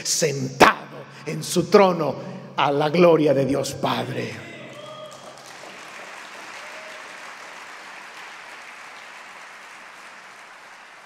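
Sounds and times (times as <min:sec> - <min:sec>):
congregation applauding: 0:04.5 - 0:11.0.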